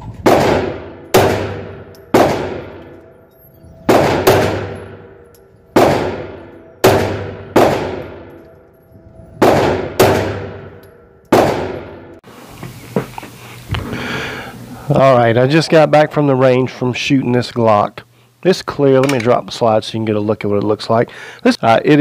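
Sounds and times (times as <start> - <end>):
pistol shots echoing indoors: 0.1 - 12.2.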